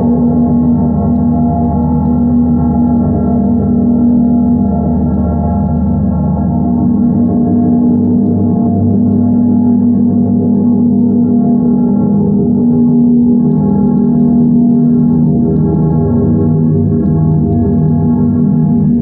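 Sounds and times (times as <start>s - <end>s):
ringing bell drone: 0.0s - 19.0s.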